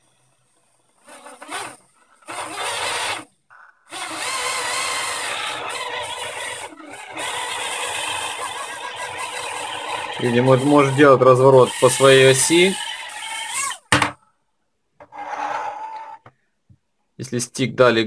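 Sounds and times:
drone motors whirring: 1.0s - 13.9s.

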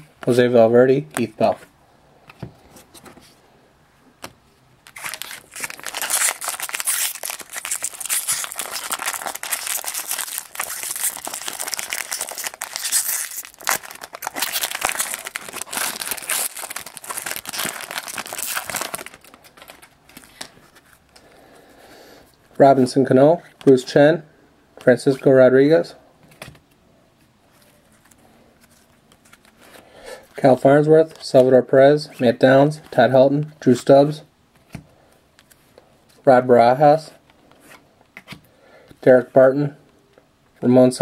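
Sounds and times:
foil wrapper tearing and crinkling: 4.9s - 20.5s.

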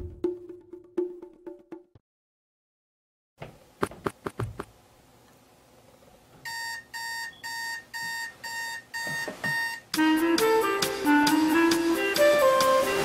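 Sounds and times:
digital alarm clock beeping: 6.5s - 9.9s.

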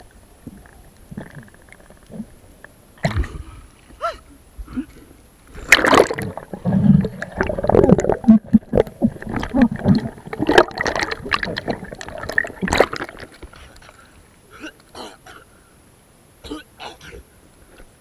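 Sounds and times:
water gurgling and sloshing: 0.0s - 4.0s, 4.7s - 14.6s.

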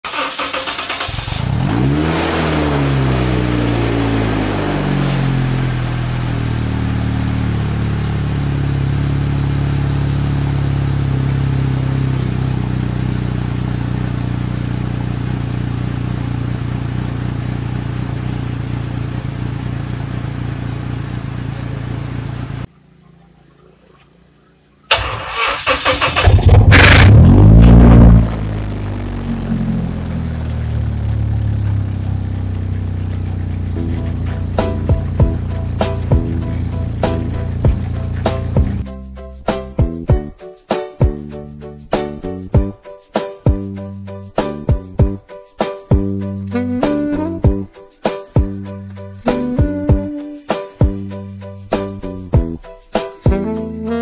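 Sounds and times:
aircraft engine revving: 0.1s - 22.7s, 24.9s - 38.8s.

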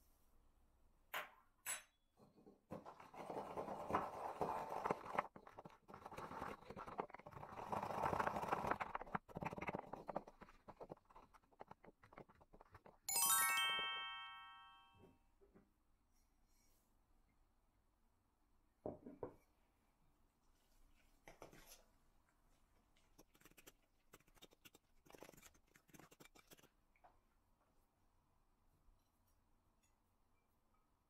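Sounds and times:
pestle crushing seeds in mortar: 2.7s - 13.1s
bright ringing note: 13.1s - 15.0s.

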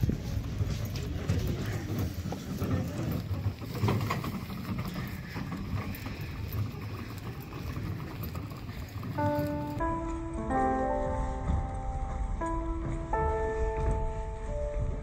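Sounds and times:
wind rumble on microphone: 0.0s - 8.6s, 11.0s - 15.0s
soft music with held notes: 9.2s - 15.0s.

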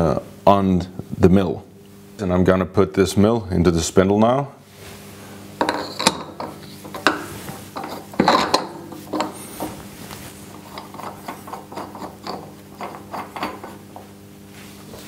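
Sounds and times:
low steady hum: 0.0s - 15.0s
metal clinks and scrapes: 5.6s - 9.8s.

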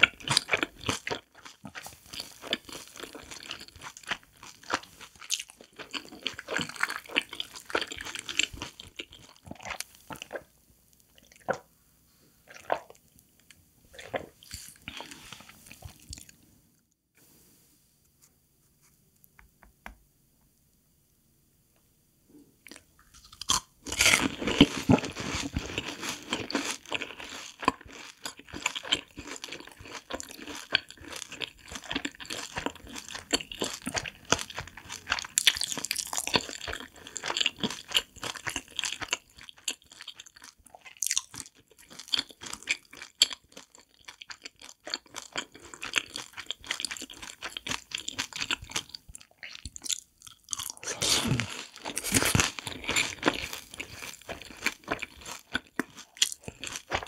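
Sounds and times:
crackly chewing: 0.0s - 11.7s, 12.4s - 16.5s, 22.6s - 57.0s
crunchy bites: 23.0s - 57.0s.

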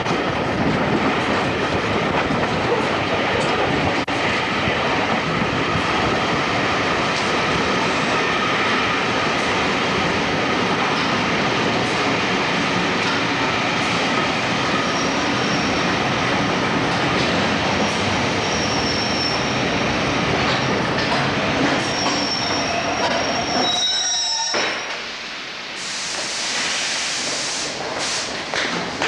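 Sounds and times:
train wheel rumble: 0.0s - 29.0s
wheel and brake squeal: 18.4s - 19.5s, 21.8s - 25.0s
air hiss: 25.7s - 28.4s.

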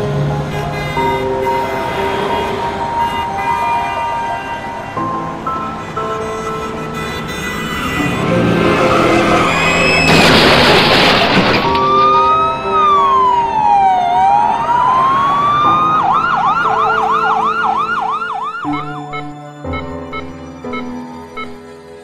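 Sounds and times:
background music: 0.0s - 10.0s, 11.3s - 22.0s
emergency siren wailing: 0.4s - 22.0s
loud crash: 9.1s - 12.1s.

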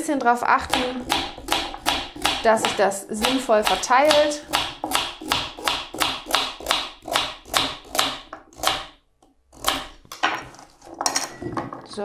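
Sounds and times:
knife chopping carrot on board: 0.6s - 9.0s, 9.6s - 10.0s.

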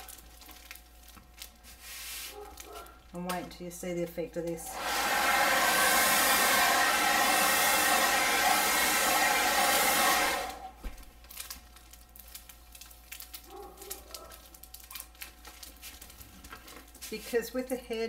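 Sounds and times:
plastic film crinkling: 0.0s - 3.2s, 10.7s - 18.0s
hair dryer blowing: 4.4s - 10.8s.

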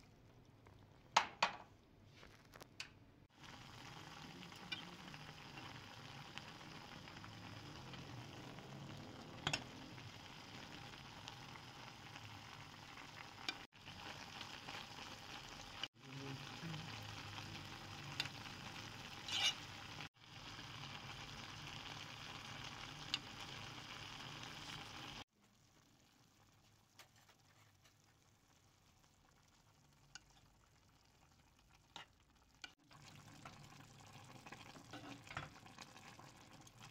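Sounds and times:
meat and onions sizzling in a pan: 3.3s - 25.3s.

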